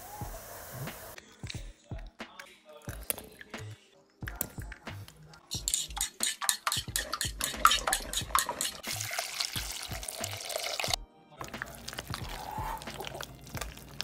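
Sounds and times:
wire whisk beating in bowl: 5.5s - 10.2s.

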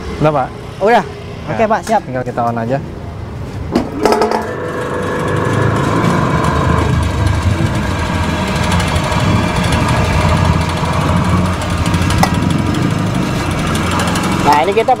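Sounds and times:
vibrating flour sieve hum: 4.1s - 15.0s.

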